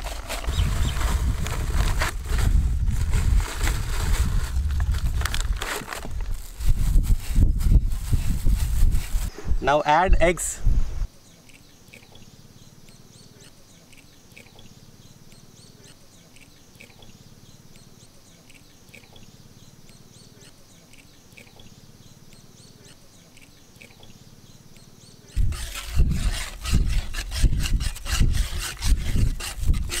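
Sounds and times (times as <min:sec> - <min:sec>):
faint birdsong: 0:00.3 - 0:01.6, 0:11.0 - 0:28.0
whisk scraping steel bowl: 0:25.4 - 0:30.0.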